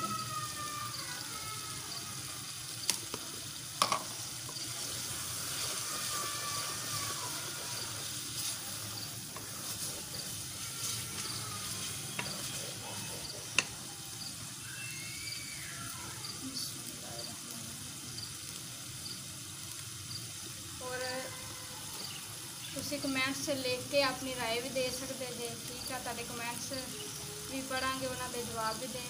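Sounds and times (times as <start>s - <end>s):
food sizzling in a pot: 0.0s - 29.0s.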